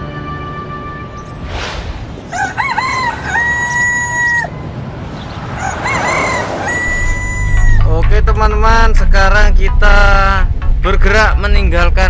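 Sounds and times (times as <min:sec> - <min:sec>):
brief rushing noise: 0:01.4 - 0:02.3
rooster crowing: 0:02.3 - 0:04.7, 0:05.5 - 0:07.9.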